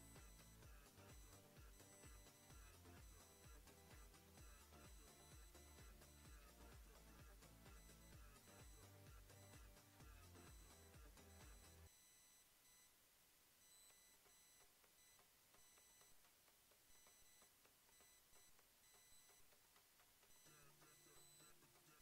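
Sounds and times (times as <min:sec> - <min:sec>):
faint background music: 0:00.0 - 0:12.1, 0:14.0 - 0:22.0
short high-pitched electronic beeps: 0:00.0 - 0:12.9, 0:16.9 - 0:19.5, 0:20.3 - 0:22.0.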